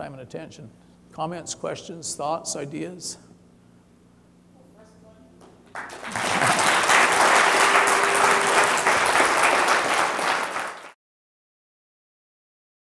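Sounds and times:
audience applauding: 5.7 - 11.0.

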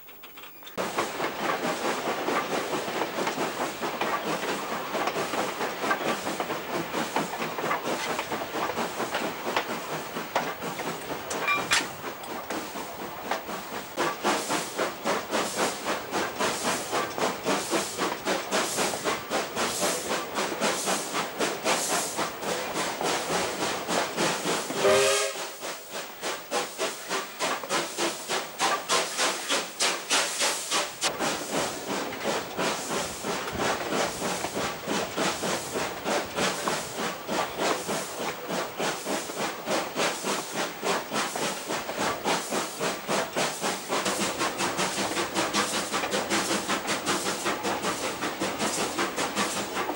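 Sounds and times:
steam locomotive chuffing: 0.7 - 49.9
steam hiss: 0.8 - 49.9
steam whistle blast: 24.8 - 25.6.

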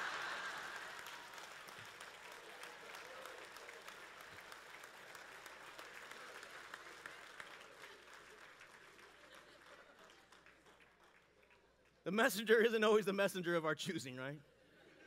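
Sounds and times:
crowd laughing: 0.0 - 1.2, 9.0 - 10.4
crowd clapping: 0.0 - 12.7.

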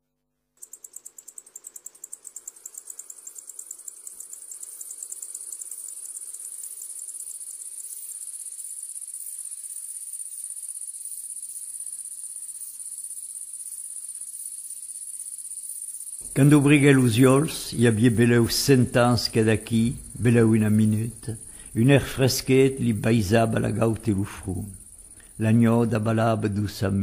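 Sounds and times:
insects chirping: 0.6 - 27.0
soft rushing hiss: 0.6 - 27.0
faint low hum: 16.2 - 27.0.

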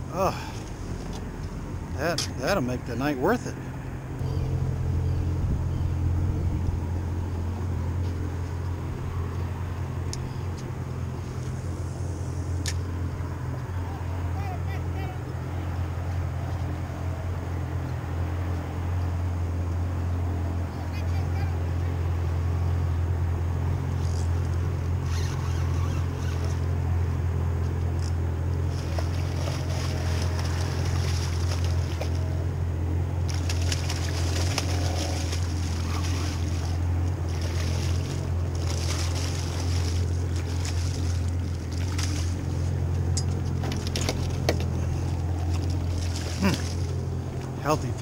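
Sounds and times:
boat engine idling: 0.0 - 48.0
fish splashing: 28.6 - 32.4, 33.2 - 43.1, 43.8 - 47.5.

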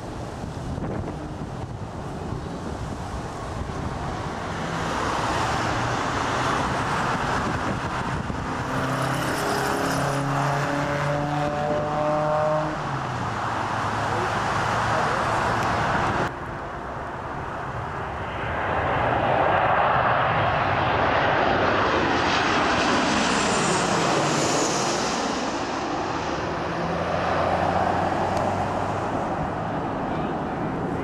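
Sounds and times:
wind buffeting microphone: 0.0 - 10.1
jet engines rushing: 0.0 - 31.0
rising engine whine: 0.0 - 31.0.

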